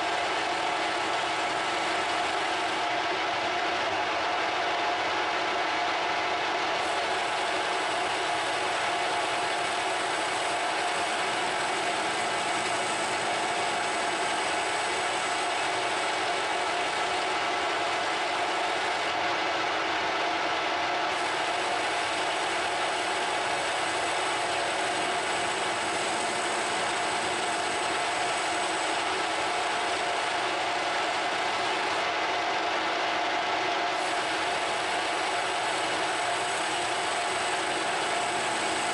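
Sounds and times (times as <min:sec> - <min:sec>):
lathe gear noise: 0:00.0 - 0:02.8, 0:06.8 - 0:19.2, 0:21.1 - 0:32.3, 0:34.0 - 0:38.9
lathe tool cutting metal: 0:06.8 - 0:19.0, 0:21.2 - 0:32.1, 0:34.0 - 0:38.9.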